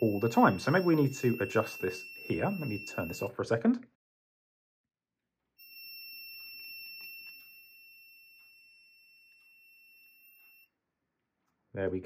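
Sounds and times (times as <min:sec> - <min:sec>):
buzzer high beep: 0:00.0 - 0:03.4.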